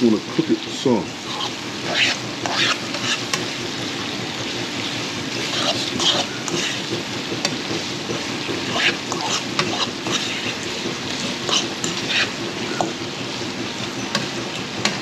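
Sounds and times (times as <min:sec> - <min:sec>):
meat sizzling in a pan: 0:00.0 - 0:15.0
utensil scraping a pan: 0:01.1 - 0:03.6, 0:05.3 - 0:13.0.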